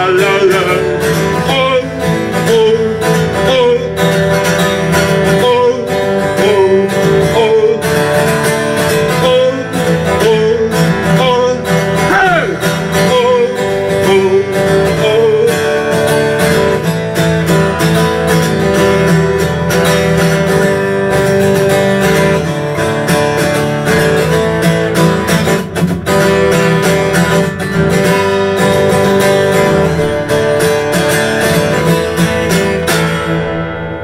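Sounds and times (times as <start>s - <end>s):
person singing: 0.0s - 16.9s
acoustic guitar strumming: 0.0s - 34.0s.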